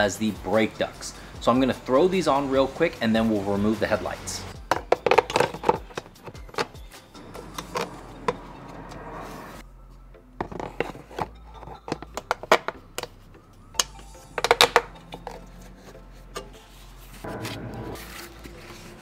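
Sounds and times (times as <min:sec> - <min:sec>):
plastic parts clicking and knocking: 0:04.6 - 0:06.8, 0:10.4 - 0:13.2, 0:13.8 - 0:15.5.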